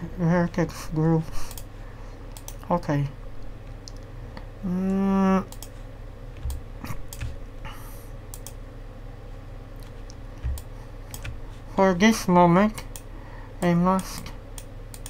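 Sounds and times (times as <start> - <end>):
low electrical hum: 0.0 - 15.0
keyboard and mouse clicks: 2.3 - 2.7, 6.4 - 7.4, 8.3 - 8.6, 9.8 - 11.4, 14.0 - 15.0
person humming: 4.6 - 5.6.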